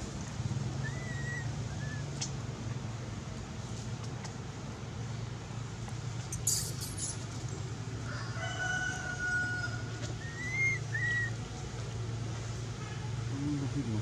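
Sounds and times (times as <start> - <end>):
rooster crowing: 8.0 - 10.0.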